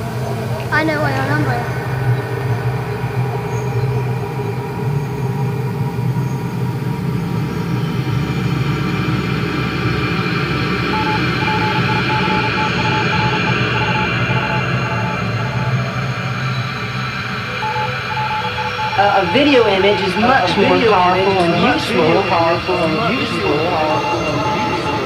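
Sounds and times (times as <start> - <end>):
underground train rumble: 0.0 - 25.0
short beeps: 10.9 - 16.6, 17.5 - 25.0.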